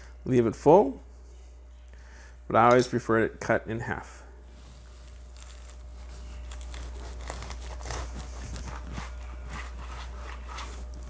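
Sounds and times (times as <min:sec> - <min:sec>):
knife cutting crunchy toast: 0:05.0 - 0:10.8.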